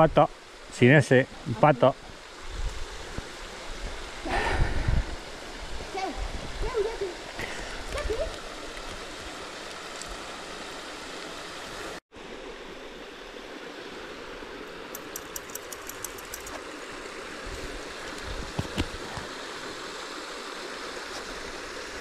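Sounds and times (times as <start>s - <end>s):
stream rushing over rocks: 0.0s - 22.0s
faint high ticks: 14.9s - 16.6s.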